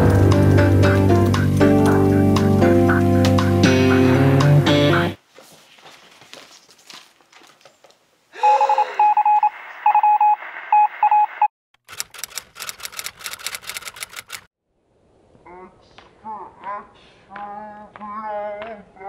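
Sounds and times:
telephone tone beeping: 8.4s - 11.5s
typing clicks: 11.8s - 14.5s.

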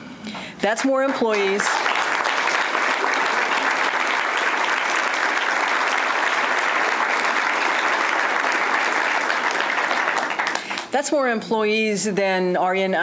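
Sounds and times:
crowd applauding: 0.7s - 10.9s.

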